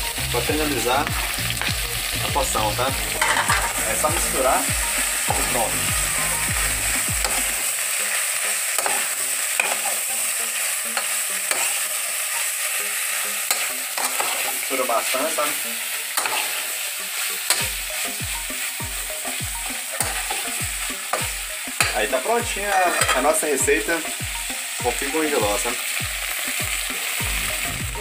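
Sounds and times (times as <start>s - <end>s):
food sizzling in a pot: 0.0s - 28.0s
metal spoon scraping a pot: 3.2s - 3.8s.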